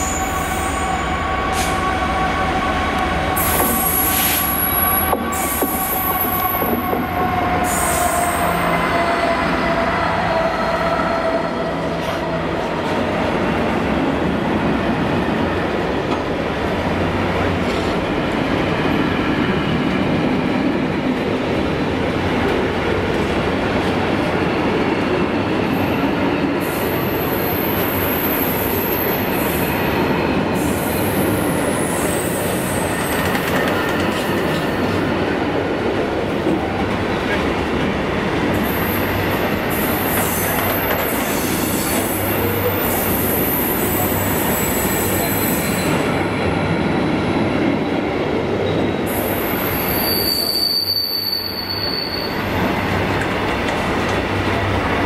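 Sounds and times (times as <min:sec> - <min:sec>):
train wheels rumbling on rail: 0:00.0 - 0:55.0
high-pitched wheel squeal: 0:49.1 - 0:52.5.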